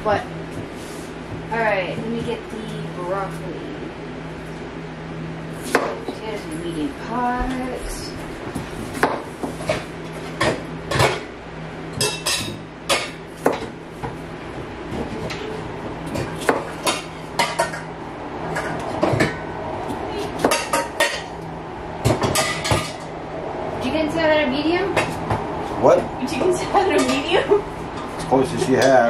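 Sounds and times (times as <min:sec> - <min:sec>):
steady low hum: 0:00.0 - 0:29.0
metal pots and pans clanking: 0:16.2 - 0:17.9, 0:22.0 - 0:23.1.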